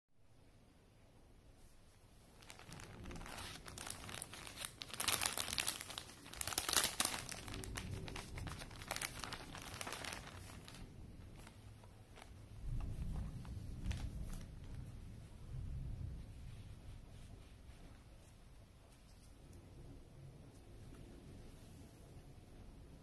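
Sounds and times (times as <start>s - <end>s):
plastic bag crinkling: 2.3s - 15.0s.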